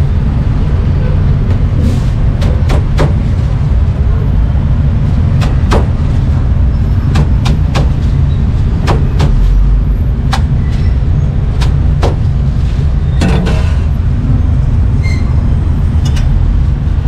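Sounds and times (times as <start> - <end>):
street traffic rumble: 0.0 - 17.0
sharp knocks: 2.4 - 3.3, 5.4 - 6.0, 7.1 - 8.1, 11.6 - 12.3.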